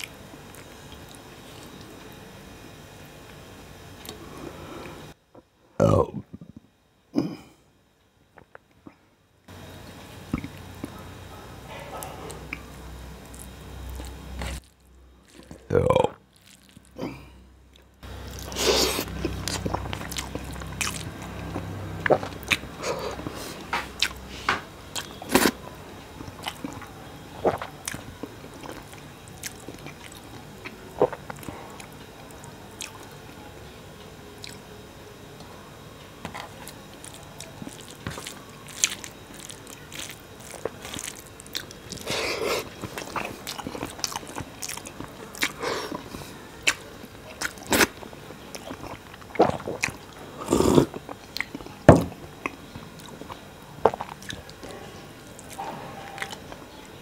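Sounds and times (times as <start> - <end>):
person chewing: 10.3 - 11.0, 11.7 - 32.0, 32.8 - 33.1, 36.2 - 56.6.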